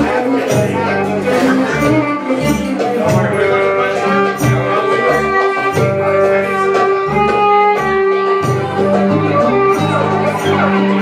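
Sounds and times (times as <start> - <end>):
bass guitar: 0.0 - 11.0
plucked strings: 0.0 - 11.0
violin melody: 0.0 - 11.0.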